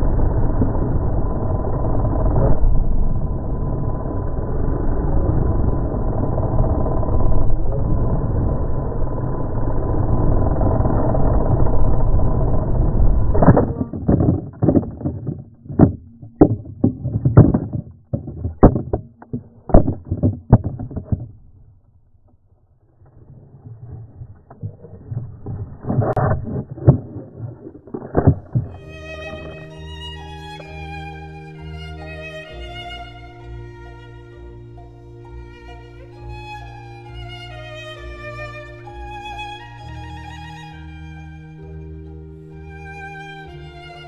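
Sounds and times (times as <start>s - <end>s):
drone hitting the ground: 0.0s - 21.6s, 24.0s - 30.8s
knocks and thuds of tumbling: 13.4s - 21.5s, 24.5s - 29.6s.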